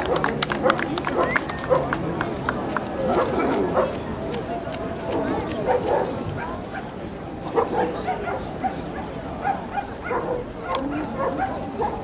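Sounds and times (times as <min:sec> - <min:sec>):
crowd noise: 0:00.0 - 0:12.0
dogs barking: 0:05.6 - 0:06.9, 0:07.5 - 0:12.0.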